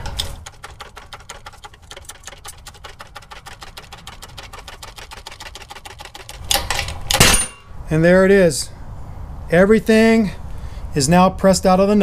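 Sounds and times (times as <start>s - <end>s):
shop press rapid clicking: 0.1s - 7.0s.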